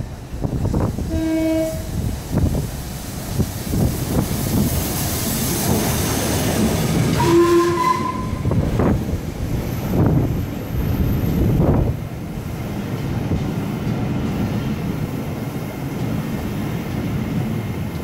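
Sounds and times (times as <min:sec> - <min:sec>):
steam train passing: 0:00.0 - 0:18.0
steam whistle blasts: 0:01.1 - 0:01.9, 0:07.2 - 0:08.6.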